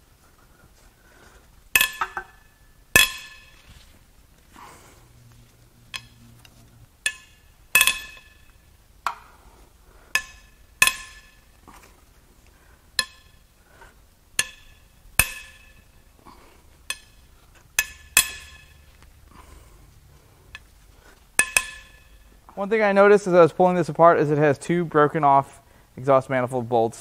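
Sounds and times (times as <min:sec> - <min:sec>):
metal-on-metal clinks: 0:01.7 - 0:03.6, 0:07.0 - 0:08.7, 0:16.9 - 0:19.0.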